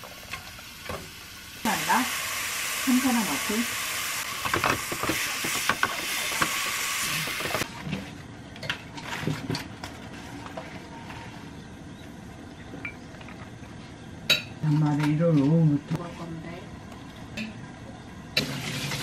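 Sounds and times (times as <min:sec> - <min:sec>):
mushrooms sizzling in frying pan: 0:00.0 - 0:07.7.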